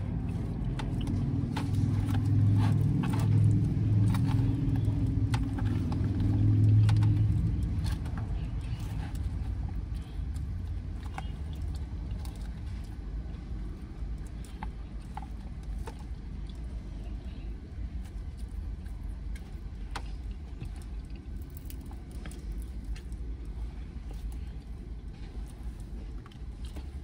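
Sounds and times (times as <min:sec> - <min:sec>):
car cabin rumble: 0:00.0 - 0:17.6
person eating salad: 0:00.0 - 0:27.0.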